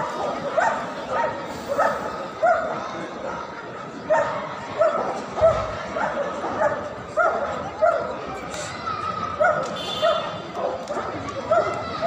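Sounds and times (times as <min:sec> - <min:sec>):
dog barking: 0:00.2 - 0:02.8, 0:04.1 - 0:08.2, 0:09.4 - 0:11.8.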